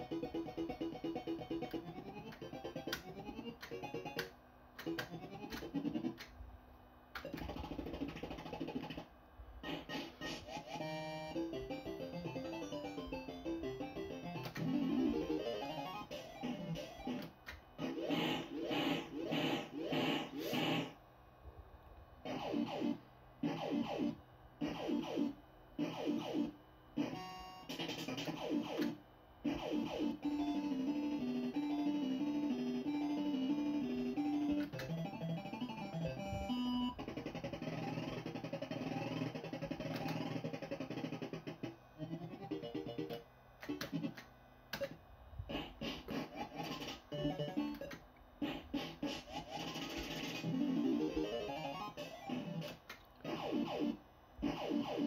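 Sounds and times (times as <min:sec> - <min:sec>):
falling electronic tones: 0:09.6 - 0:20.9, 0:44.8 - 0:48.0, 0:49.2 - 0:55.0
sharp clicks: 0:43.6 - 0:45.0.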